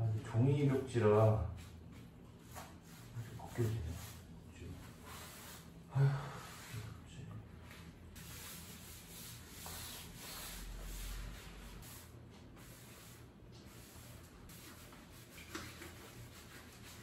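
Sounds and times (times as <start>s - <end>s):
rag rubbing on wallpaper: 2.4s - 5.8s, 8.2s - 17.0s.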